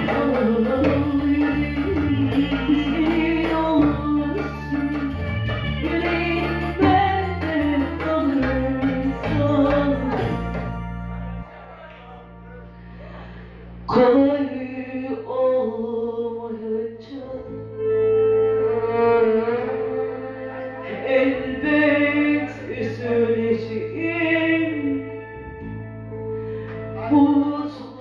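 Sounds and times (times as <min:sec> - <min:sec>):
hand drum: 0:00.0 - 0:10.9
saz ensemble playing: 0:00.0 - 0:13.9, 0:17.6 - 0:23.6.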